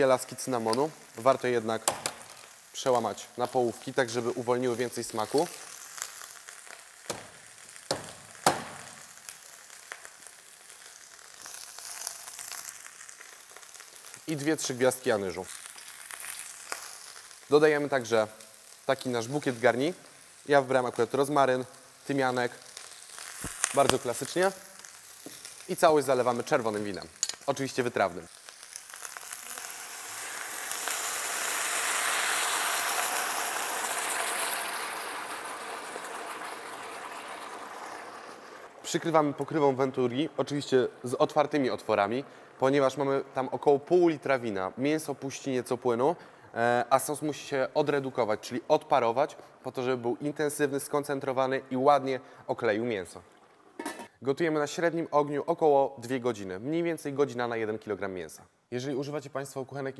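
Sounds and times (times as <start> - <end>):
meat and vegetables sizzling in pot: 0.0 - 54.2
wine hissing in hot pot: 0.8 - 14.1, 28.3 - 39.4
cinnamon sticks snapping: 23.4 - 24.0.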